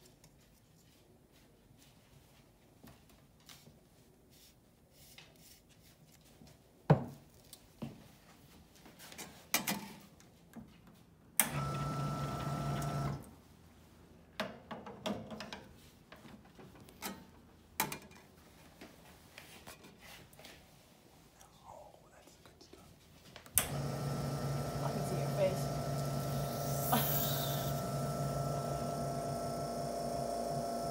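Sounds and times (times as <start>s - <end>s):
espresso machine pump humming: 11.6s - 13.2s, 23.6s - 30.9s.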